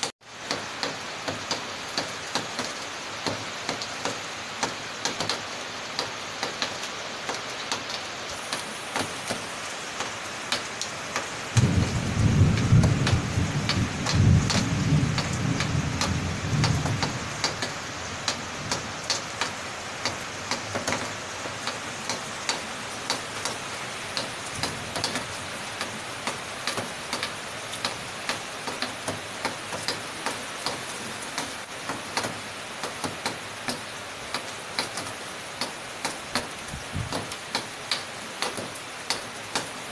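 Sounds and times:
heavy rain: 0:00.0 - 0:39.9
low thunder rumble: 0:11.6 - 0:17.6.

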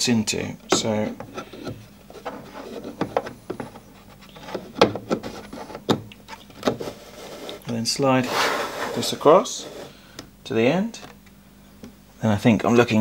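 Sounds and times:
hard plastic rubbing and clicking: 0:00.6 - 0:09.9.

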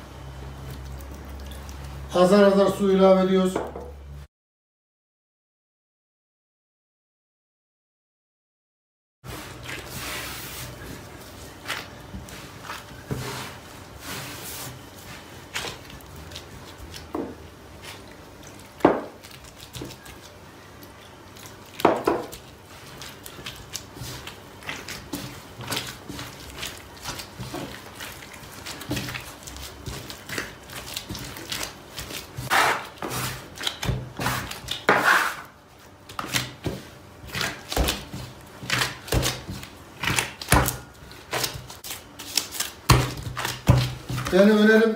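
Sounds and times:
hands kneading dough on wood: 0:09.3 - 0:44.9.

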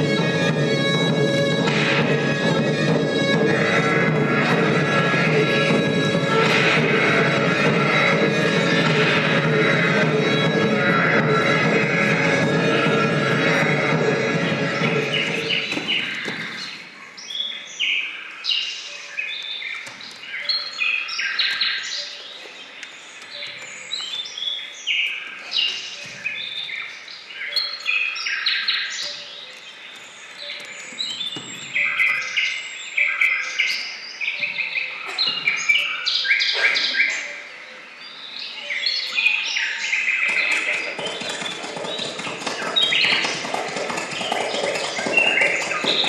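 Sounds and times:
music: 0:00.0 - 0:16.7
birds chirping and trilling: 0:00.0 - 0:46.0.

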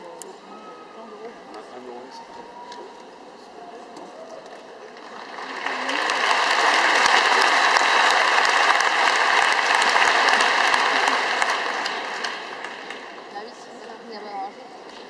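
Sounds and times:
crowd applauding: 0:04.7 - 0:13.7.

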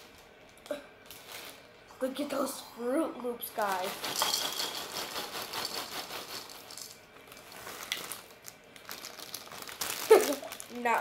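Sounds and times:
cereal pouring into a bowl: 0:03.8 - 0:08.3.

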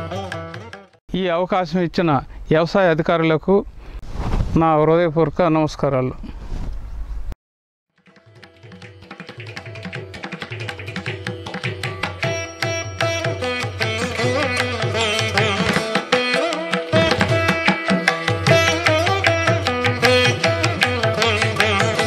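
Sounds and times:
instrumental background music: 0:07.9 - 0:22.0.

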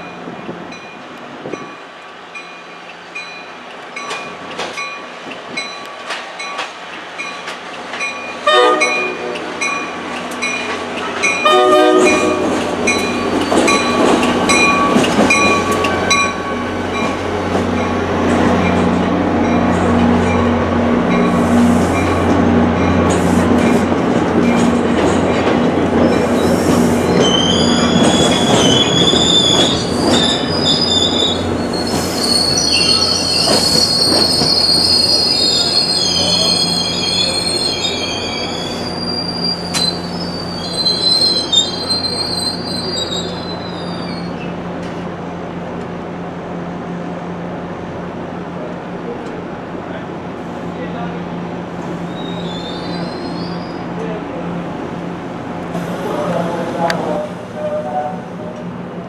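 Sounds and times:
train horn: 0:08.4 - 0:09.7, 0:11.4 - 0:12.5
train wheels squealing: 0:12.9 - 0:16.4, 0:26.0 - 0:44.5, 0:51.8 - 0:53.9.

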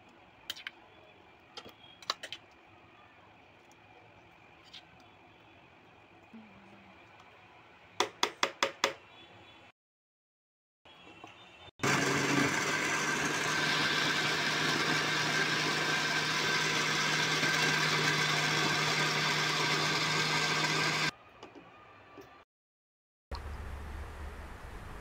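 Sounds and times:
blender motor running: 0:11.8 - 0:21.1.

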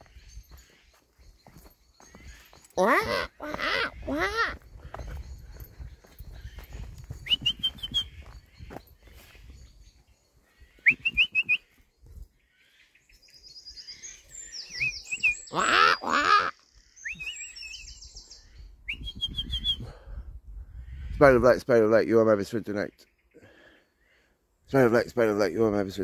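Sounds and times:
harsh bird calls: 0:00.0 - 0:20.1
whistled bird chirps: 0:07.2 - 0:08.4, 0:10.7 - 0:11.8, 0:13.2 - 0:15.6, 0:16.8 - 0:20.0.

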